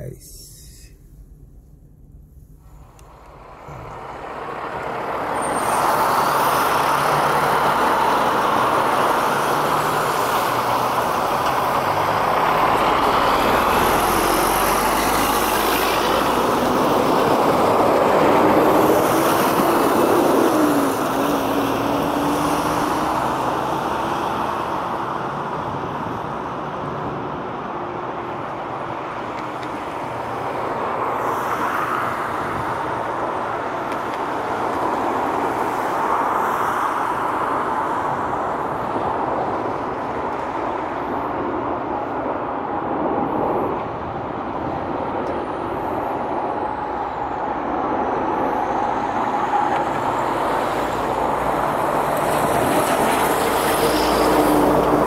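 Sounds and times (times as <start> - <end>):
jet airliner passing overhead: 41.1 - 55.0.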